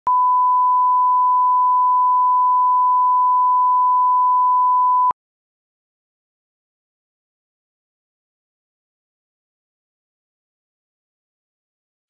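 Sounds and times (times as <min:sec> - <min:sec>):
steady reference tone beep: 0:00.1 - 0:05.1.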